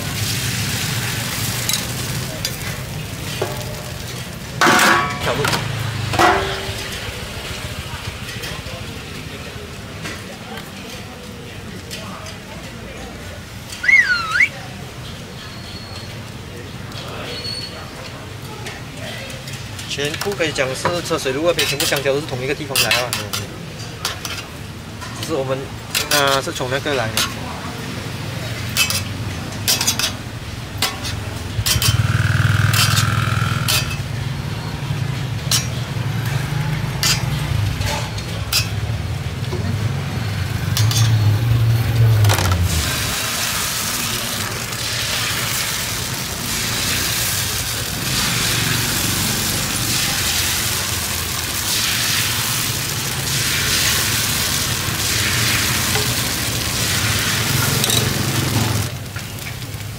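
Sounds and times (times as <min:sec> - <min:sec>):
batter sizzling: 0:00.0 - 0:08.3, 0:19.5 - 0:59.9
metal spatula scraping griddle pan: 0:04.6 - 0:07.1, 0:20.1 - 0:24.5, 0:28.6 - 0:30.2, 0:30.8 - 0:34.1, 0:36.9 - 0:38.8.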